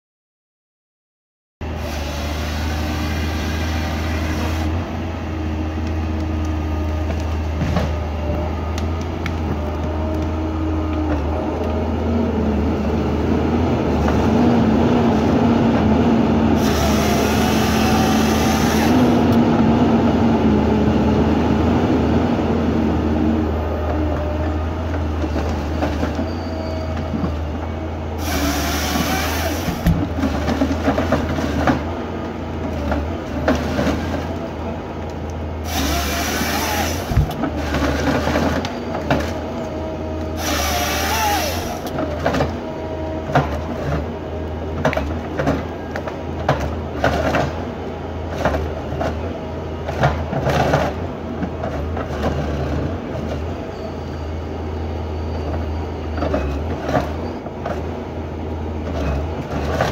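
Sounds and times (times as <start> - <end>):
hydraulic whine: 1.6 - 5.0, 16.6 - 19.4, 28.2 - 30.2, 35.6 - 42.6
forest harvester running: 1.6 - 54.0
saw cutting through log: 1.7 - 4.8, 16.6 - 19.3, 28.2 - 30.0, 35.6 - 38.2, 40.4 - 42.0.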